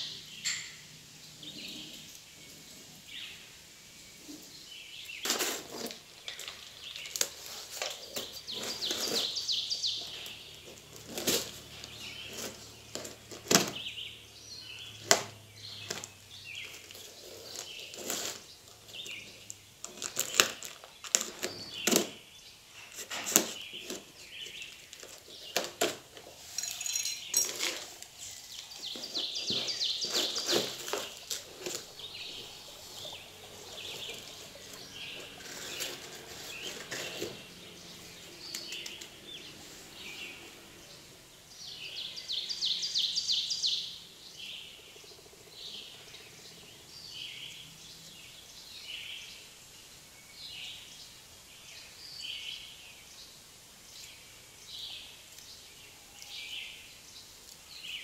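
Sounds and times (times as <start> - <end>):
knife cutting tape and cardboard: 5.2 - 6.1, 7.0 - 13.8, 15.1 - 19.2, 19.8 - 22.2, 22.8 - 26.6, 27.5 - 33.0, 33.7 - 37.5.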